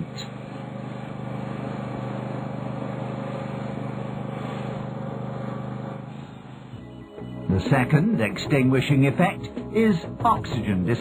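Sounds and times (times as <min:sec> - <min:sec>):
pump engine droning: 0:00.0 - 0:08.3.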